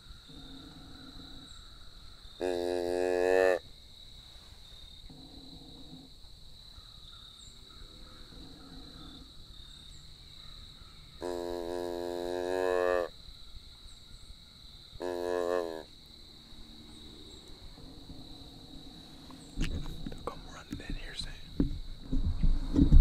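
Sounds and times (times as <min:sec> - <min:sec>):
deer grunt call: 0:02.4 - 0:03.6, 0:11.2 - 0:13.1, 0:15.0 - 0:15.9.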